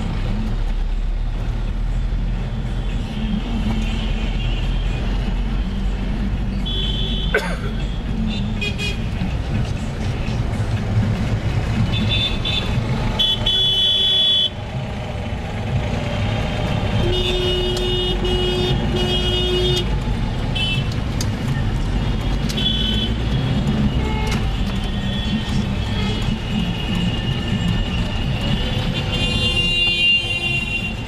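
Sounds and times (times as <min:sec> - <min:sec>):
car engine and road rumble: 0:00.0 - 0:31.0
vehicle horns honking: 0:06.6 - 0:09.1, 0:11.9 - 0:14.6, 0:16.9 - 0:19.9, 0:22.5 - 0:23.2, 0:23.8 - 0:27.6, 0:28.4 - 0:31.0.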